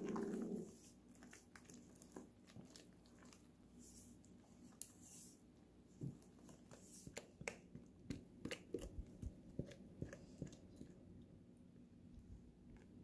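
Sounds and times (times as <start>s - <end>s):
wet squelches: 0.0s - 5.5s.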